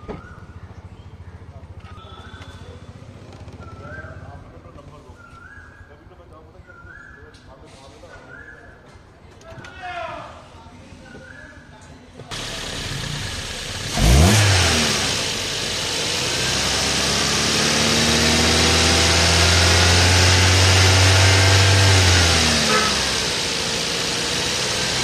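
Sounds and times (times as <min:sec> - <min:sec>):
car engine revving: 0:12.3 - 0:25.0.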